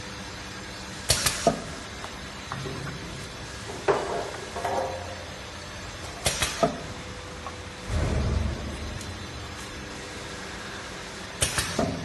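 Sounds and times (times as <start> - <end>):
machine humming with faint whine: 0.0 - 12.0
machine knocks and clatters: 7.8 - 9.4, 11.4 - 12.0.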